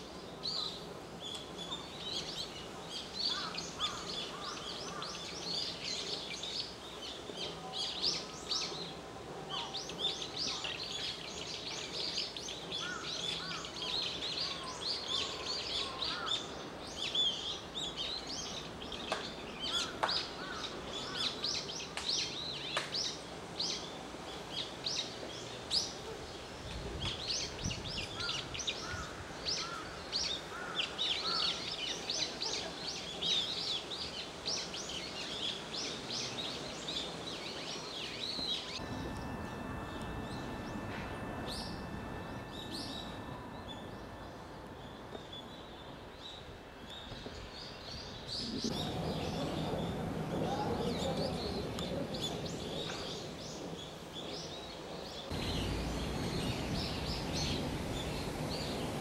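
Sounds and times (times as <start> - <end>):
low background noise: 0.0 - 59.0
small birds chirping: 0.0 - 59.0
faint steady tones: 35.6 - 59.0.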